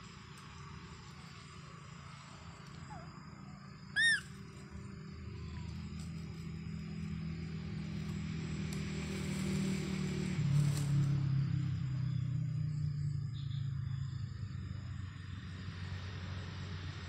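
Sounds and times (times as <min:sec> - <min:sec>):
baby monkey squeaking: 0:04.0 - 0:04.4.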